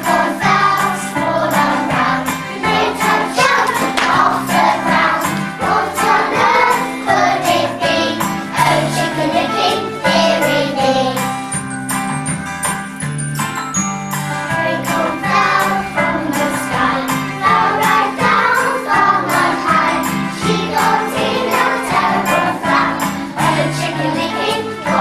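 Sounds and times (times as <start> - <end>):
young children singing: 0.0 - 11.3, 14.6 - 25.0
jingling percussion: 0.0 - 25.0
recorded music with steady beat: 11.2 - 14.6.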